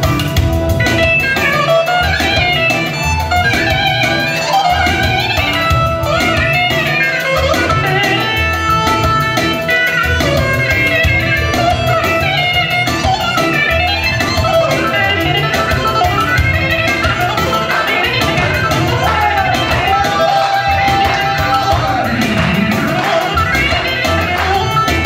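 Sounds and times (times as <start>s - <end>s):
keyboard solo melody: 0.0s - 25.0s
steady drum accompaniment: 0.0s - 25.0s.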